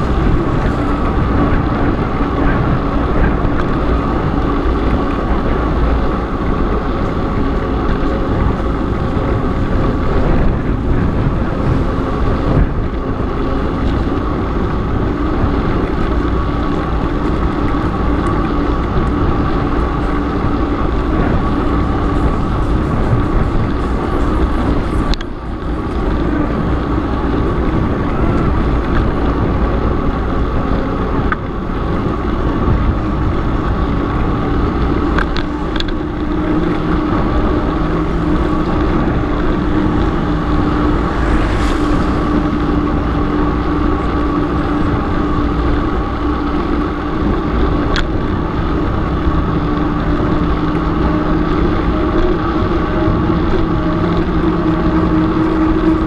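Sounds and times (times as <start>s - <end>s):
bike clicking and rattling: 0.0s - 40.6s
bike tyre humming on asphalt: 0.0s - 56.0s
wind rushing over microphone: 0.0s - 56.0s.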